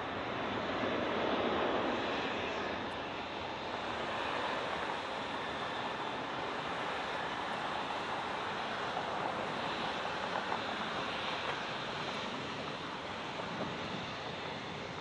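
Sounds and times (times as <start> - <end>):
distant jet engine roar: 0.0 - 15.0.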